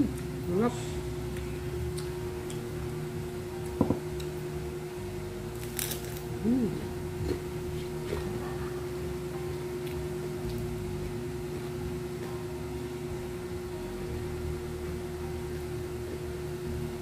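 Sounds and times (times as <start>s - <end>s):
steady low hum: 0.0s - 17.0s
crunchy bite into fried food: 5.5s - 6.3s.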